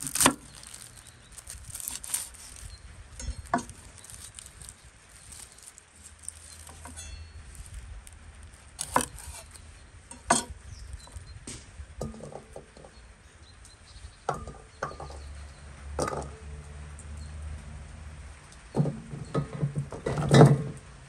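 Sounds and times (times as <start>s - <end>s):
garlic cloves snapping: 0.0s - 2.6s
papery skins rustling: 0.0s - 9.7s.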